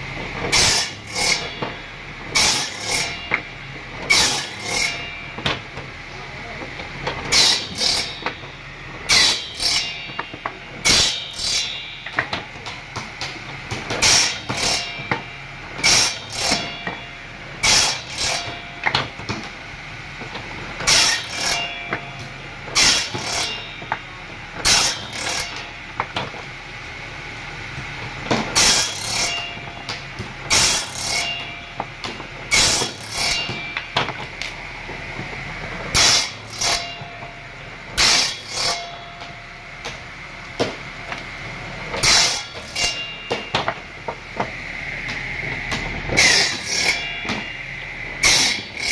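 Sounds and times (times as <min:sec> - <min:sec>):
table saw cutting wood: 0:00.5 - 0:01.6, 0:02.3 - 0:05.6, 0:07.2 - 0:08.4, 0:09.0 - 0:12.1, 0:13.9 - 0:15.1, 0:15.8 - 0:19.1, 0:20.8 - 0:22.1, 0:22.7 - 0:23.8, 0:24.6 - 0:25.8, 0:28.5 - 0:29.8, 0:30.5 - 0:31.8, 0:32.4 - 0:34.5, 0:35.8 - 0:37.3, 0:38.0 - 0:39.2, 0:41.9 - 0:43.6, 0:44.4 - 0:48.9.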